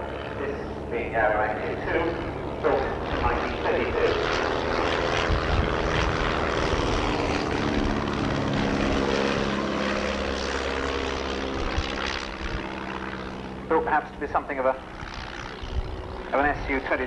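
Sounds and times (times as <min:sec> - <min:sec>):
propeller plane flying overhead: 0:00.0 - 0:17.0.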